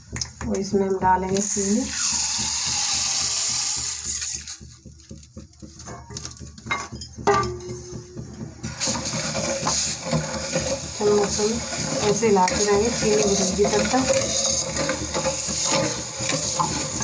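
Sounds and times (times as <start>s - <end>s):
spoon stirring and scraping pan: 0.0s - 17.0s
pan ringing: 5.8s - 8.6s.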